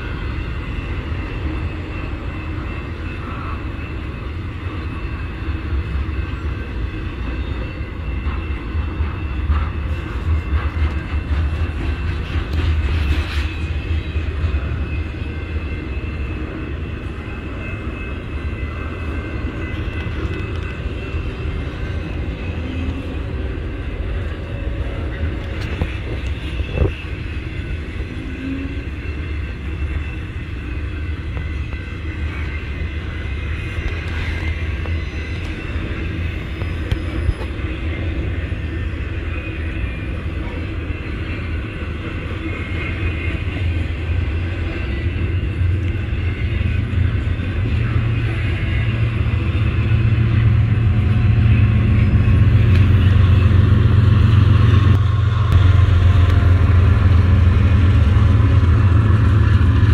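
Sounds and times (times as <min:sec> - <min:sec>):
train wheels rumbling on rail: 0:00.0 - 0:59.9
diesel engine drone: 0:43.2 - 0:59.9.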